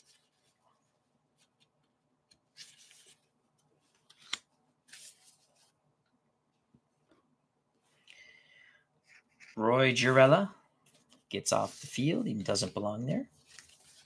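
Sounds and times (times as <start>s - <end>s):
cards rustling on paper board: 1.4s - 5.7s, 9.1s - 14.0s.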